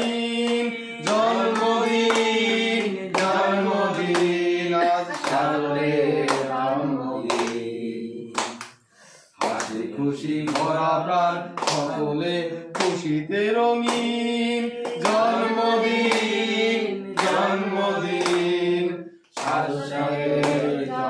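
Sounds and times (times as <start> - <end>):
group singing: 0.0 - 21.0
hand clapping on the beat: 0.0 - 21.0.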